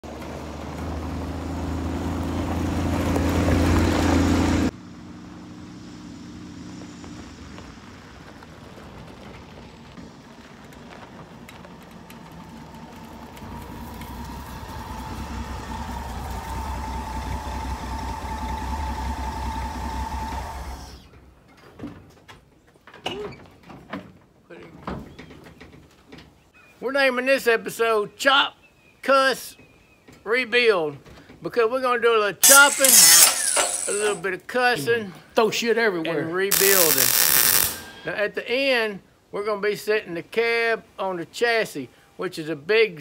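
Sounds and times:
engine whine: 0.0 - 21.1, 32.4 - 34.2, 36.5 - 38.0
van engine driving by: 0.0 - 21.1.

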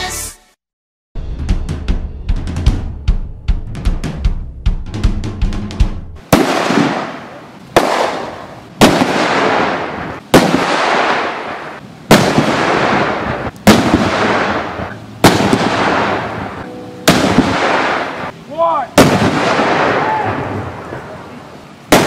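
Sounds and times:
drumbeat: 1.2 - 6.2
explosive detonations: 6.2 - 18.3, 19.0 - 20.8.

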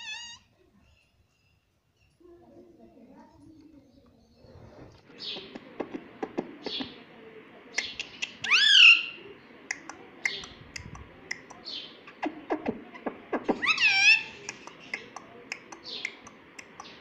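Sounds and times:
parakeet clicks and chirps: 5.1 - 7.0, 7.7 - 17.0.

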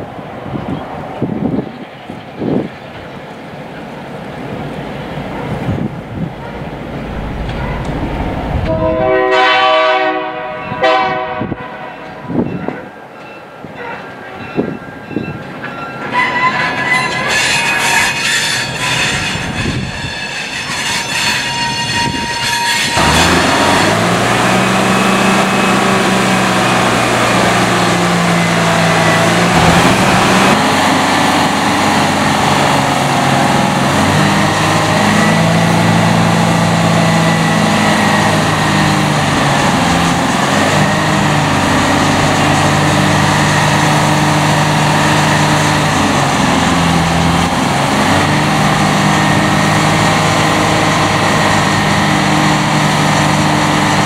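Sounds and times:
rail noise: 0.0 - 54.0
crane diesel engine running: 4.4 - 9.6, 23.0 - 54.0
train wheels squealing on track: 12.0 - 27.0.

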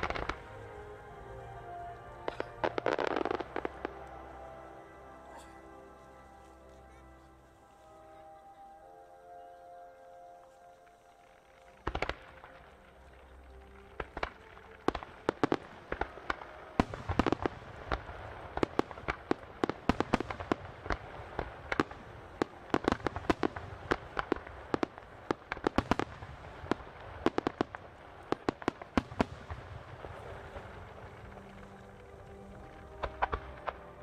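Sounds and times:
fireworks launching and bursting: 13.8 - 31.7.

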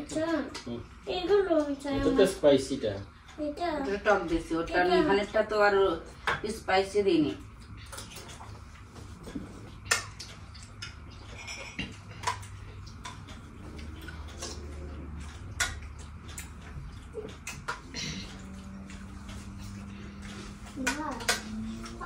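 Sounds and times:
faint low hum: 0.0 - 22.0
spoons clinking against bowls: 11.2 - 12.5.

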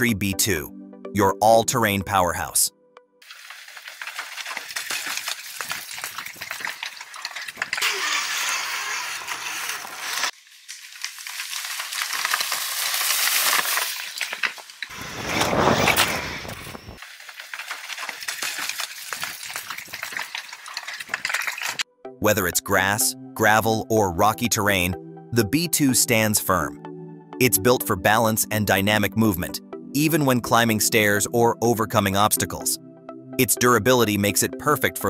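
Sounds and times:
wheels crunching on gravel: 3.2 - 21.8.

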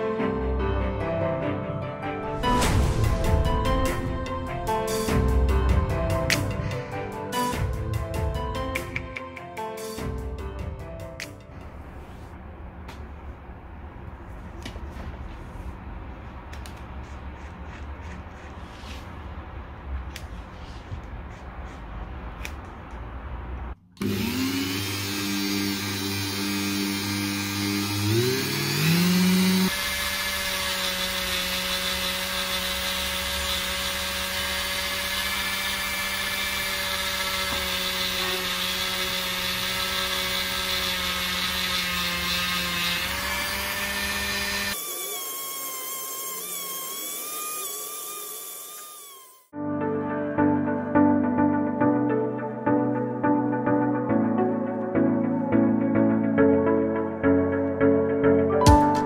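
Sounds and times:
rotary tool grinding whine: 24.0 - 49.6.

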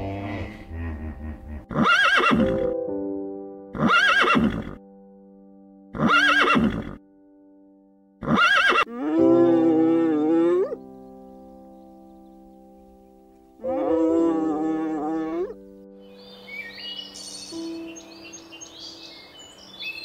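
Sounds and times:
horse neighing: 0.0 - 2.6, 3.8 - 4.8, 6.0 - 7.0, 8.2 - 10.8
background music of held chords: 0.0 - 19.8.

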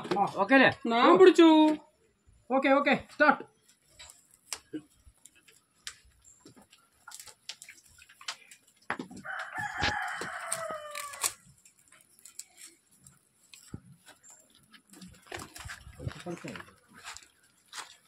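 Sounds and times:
rooster crowing: 9.2 - 11.4.

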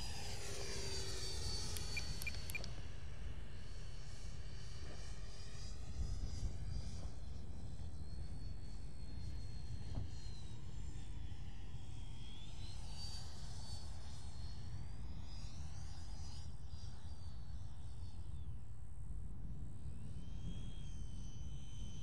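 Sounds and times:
electric jet fan whining: 0.0 - 4.6.

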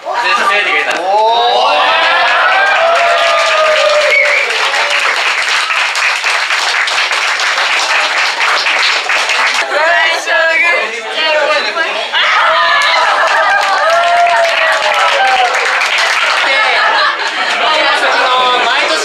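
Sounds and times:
crowd applauding: 0.5 - 10.6, 12.4 - 19.0
voices calling out: 9.6 - 19.0.

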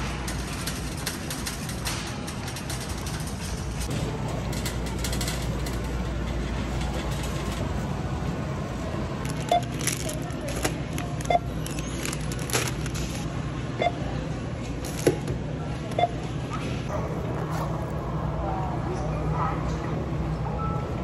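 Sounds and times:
shopping cart rolling: 0.0 - 13.4
supermarket background noise: 0.0 - 21.0
scanner beeps: 11.3 - 11.6, 13.8 - 14.0, 16.0 - 16.3.

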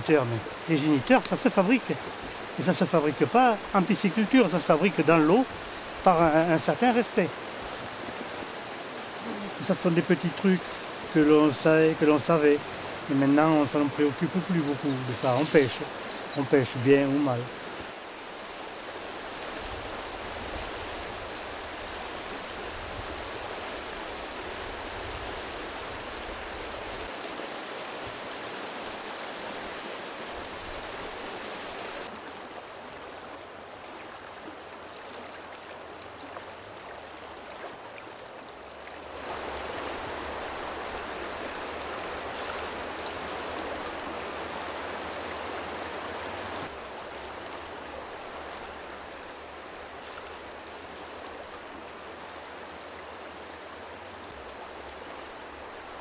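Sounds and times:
river rushing over rocks: 0.0 - 53.4.

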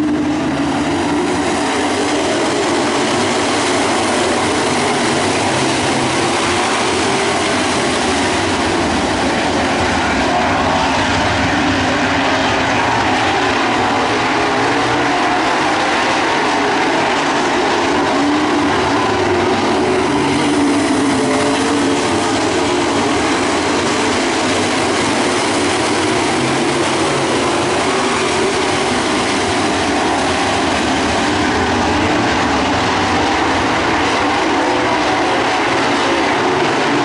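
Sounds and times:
race car engines roaring: 0.0 - 37.0.

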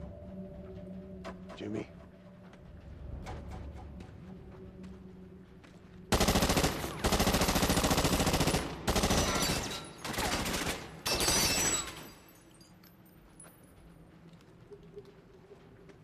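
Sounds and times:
rapid gunfire bursts: 6.1 - 10.9.

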